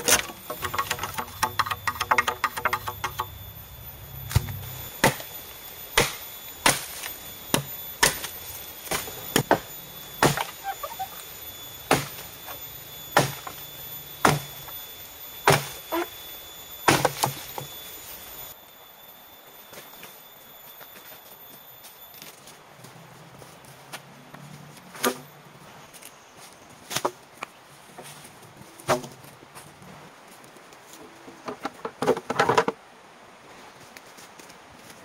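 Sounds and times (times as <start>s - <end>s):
machete chopping bamboo: 4.3s - 5.3s, 6.0s - 7.0s, 7.6s - 8.3s, 10.2s - 10.6s, 11.9s - 12.2s, 13.2s - 13.5s, 14.2s - 14.5s, 15.4s - 16.1s, 16.9s - 17.4s.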